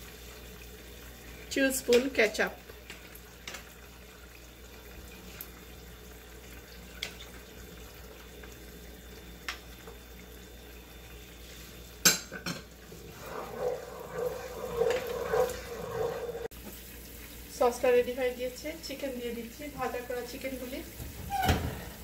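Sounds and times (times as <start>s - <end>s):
wooden spatula stirring in pan: 12.9s - 16.5s.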